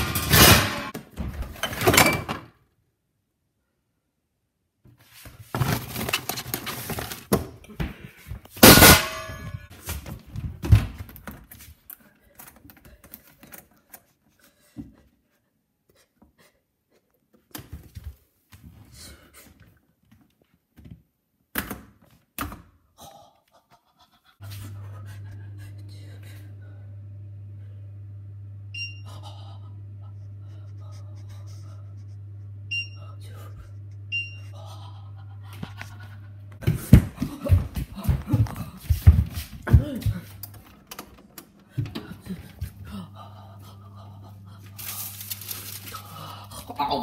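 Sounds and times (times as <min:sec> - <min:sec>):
appliance doors and drawers clattering: 0:00.0 - 0:02.5
steady low hum: 0:24.4 - 0:40.7, 0:41.7 - 0:46.8.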